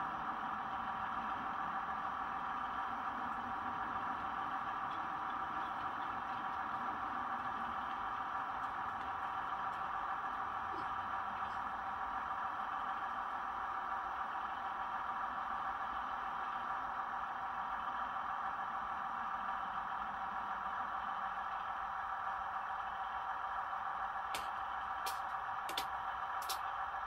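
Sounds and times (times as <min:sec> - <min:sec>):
model trains humming and rattling: 0:00.0 - 0:27.0
sharp click: 0:24.4 - 0:26.6.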